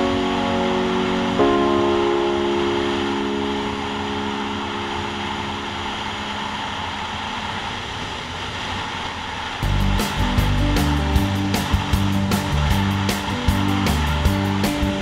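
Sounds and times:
steady tones: 0.0s - 15.0s
wind and road noise: 3.5s - 15.0s
motorcycle engine: 9.6s - 15.0s.

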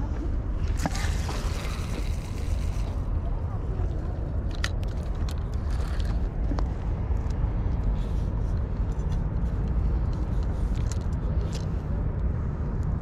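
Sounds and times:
low rumble: 0.0s - 13.0s
fishing rod and reel clicking: 0.7s - 3.0s.

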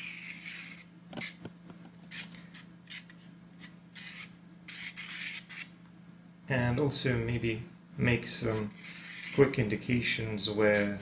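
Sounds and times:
low steady hum: 0.0s - 11.0s
pastel pencil scratching on paper: 8.4s - 9.5s.

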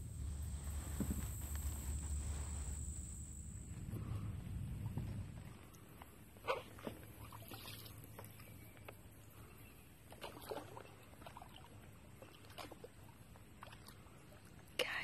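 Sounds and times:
faint low hum: 0.0s - 15.0s
paddle splashing water: 6.4s - 8.4s, 10.1s - 14.5s.

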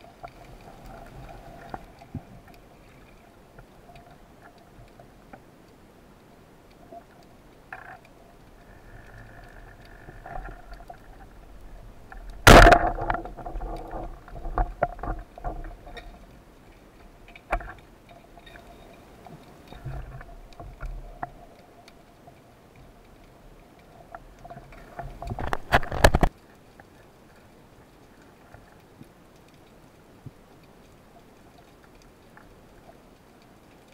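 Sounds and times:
speargun firing underwater: 12.4s - 13.3s.

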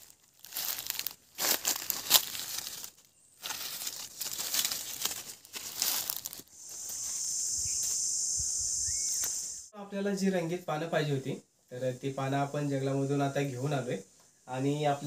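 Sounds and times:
dry leaves crackling and rustling: 0.0s - 7.9s.

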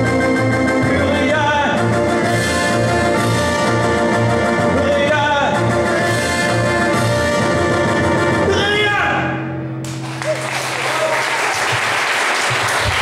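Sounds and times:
audience applause: 9.9s - 13.0s.

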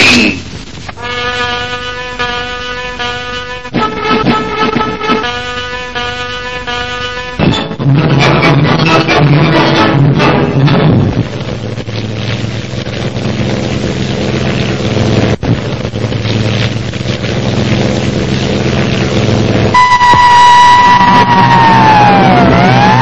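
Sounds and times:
steady droning hum: 0.0s - 23.0s
music: 3.8s - 5.4s, 7.4s - 11.0s
high whistling tone: 19.8s - 23.0s.

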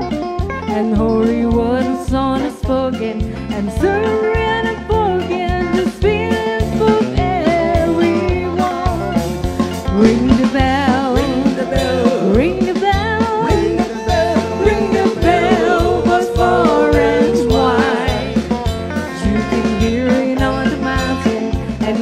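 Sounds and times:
bass guitar: 0.0s - 22.0s
drum kit: 5.5s - 22.0s
woman singing with vibrato: 10.0s - 22.0s.

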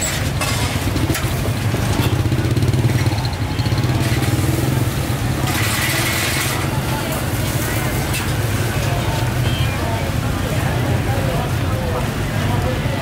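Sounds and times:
street noise: 0.0s - 13.0s
motorbike engine running: 0.8s - 7.0s.

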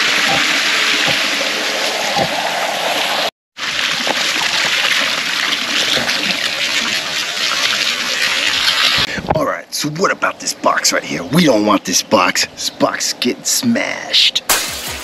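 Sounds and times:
waterfall splashing into pool: 0.0s - 9.1s.

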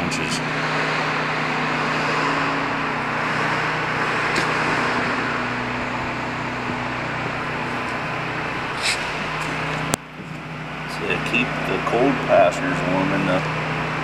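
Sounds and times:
low hum: 0.0s - 14.0s
mechanical droning: 0.0s - 14.0s
short rustle or scrape: 8.8s - 9.6s.

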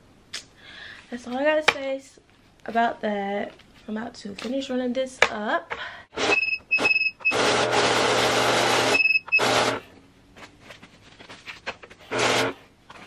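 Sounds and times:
short high beeps: 6.2s - 7.4s
banknote counter motor whirring: 6.2s - 9.8s, 12.1s - 12.6s.

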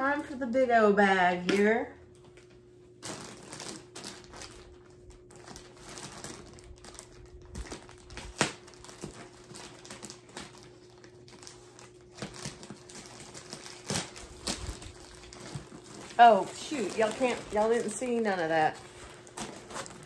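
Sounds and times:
plastic bag crinkling: 3.0s - 20.0s
plastic bag snap: 6.2s - 10.7s.

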